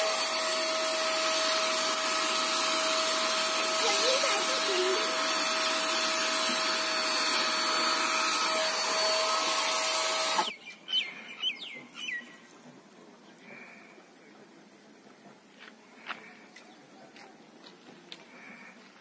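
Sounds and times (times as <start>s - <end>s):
paint sprayer motor whine: 0.0s - 10.5s
spray hissing: 3.0s - 10.4s
bird chirping: 10.5s - 12.5s.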